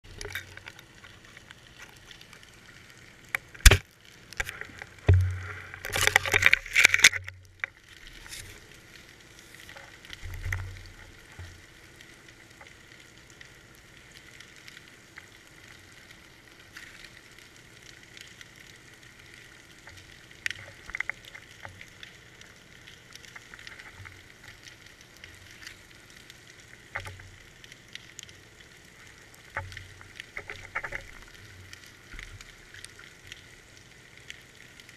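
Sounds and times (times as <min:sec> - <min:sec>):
muffled underwater hiss: 0:00.1 - 0:34.9
crackling and knocking: 0:03.4 - 0:08.5.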